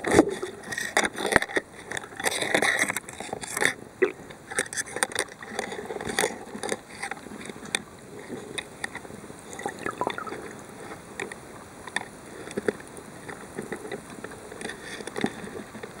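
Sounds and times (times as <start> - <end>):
underwater water wash: 9.2 - 11.9.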